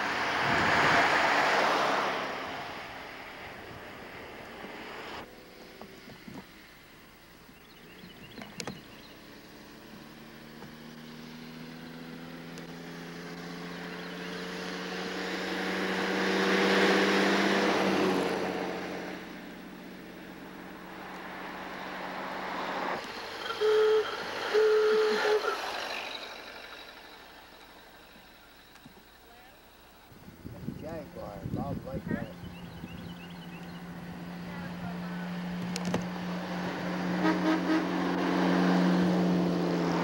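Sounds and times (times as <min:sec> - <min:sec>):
car engine passing by: 0:00.0 - 0:06.7, 0:08.0 - 0:40.0
car horn toots: 0:23.3 - 0:26.3, 0:37.2 - 0:38.1.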